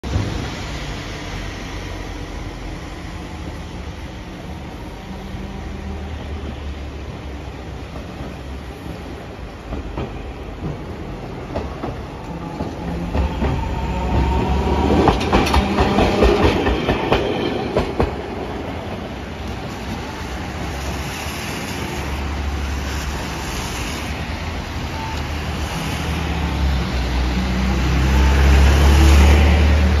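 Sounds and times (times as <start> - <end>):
streetcar rumbling past: 0.0 - 30.0
traffic on wet road: 18.1 - 30.0.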